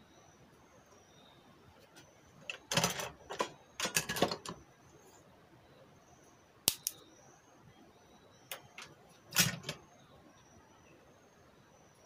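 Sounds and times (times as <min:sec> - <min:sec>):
clicks and rustles of small parts: 0:01.8 - 0:04.6, 0:08.5 - 0:09.8.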